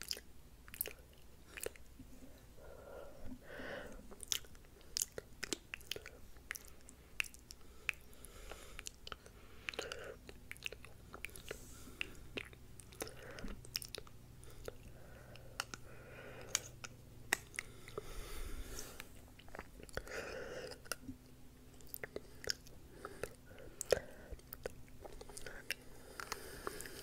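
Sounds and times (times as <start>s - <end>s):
mouth clicks and smacks: 0.0s - 2.0s, 4.1s - 18.0s, 18.8s - 27.0s
soft breathing: 1.4s - 5.0s, 6.0s - 13.7s, 14.4s - 21.0s, 22.1s - 27.0s.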